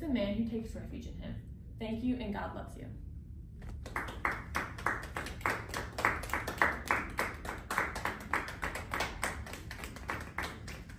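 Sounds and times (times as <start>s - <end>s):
people clapping: 3.6s - 10.9s.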